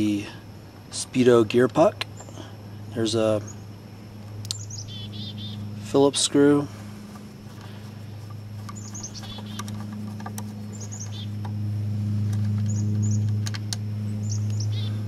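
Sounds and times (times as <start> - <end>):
steady low hum: 0.0 - 15.0
bird chirps: 2.1 - 5.8, 7.6 - 11.4, 12.6 - 13.3, 14.1 - 15.0.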